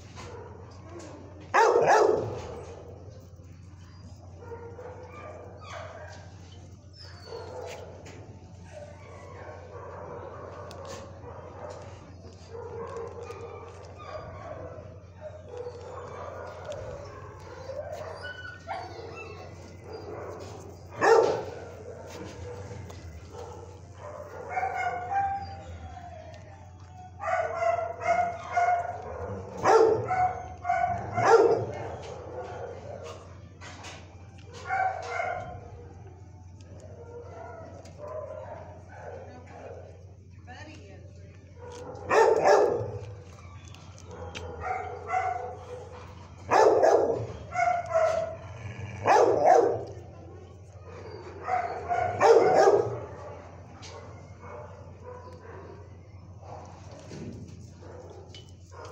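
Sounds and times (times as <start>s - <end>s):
dogs barking loudly: 0.0s - 6.4s, 7.2s - 25.8s, 27.2s - 33.3s, 34.6s - 35.9s, 41.6s - 43.4s, 44.0s - 58.9s
dogs yipping: 0.0s - 39.8s, 41.5s - 58.9s.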